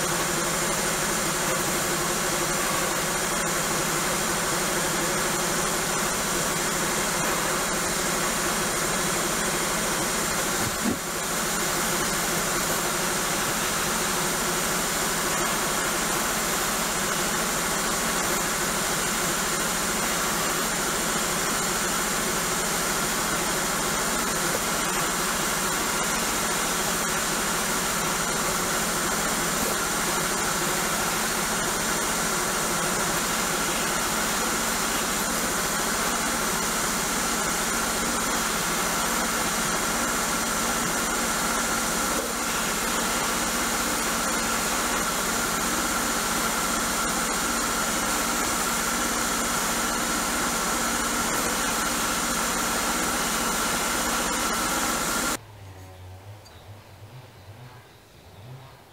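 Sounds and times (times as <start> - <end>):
sandblasting gun hissing: 0.0 - 55.4.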